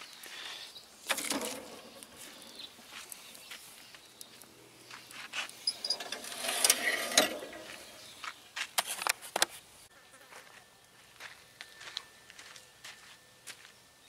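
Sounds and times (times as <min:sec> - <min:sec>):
metal lid clanking and scraping: 0:01.1 - 0:02.0, 0:05.7 - 0:08.1.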